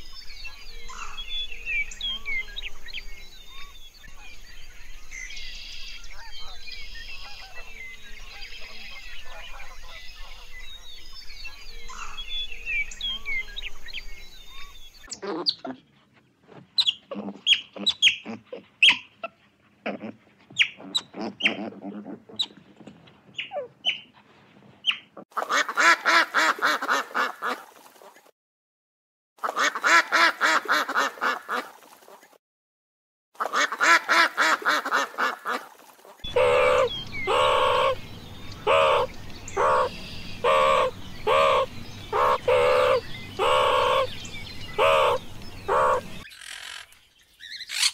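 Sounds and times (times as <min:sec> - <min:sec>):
animal chirps: 0:36.2 - 0:47.9
rapid pulsed animal calls: 0:36.3 - 0:46.9.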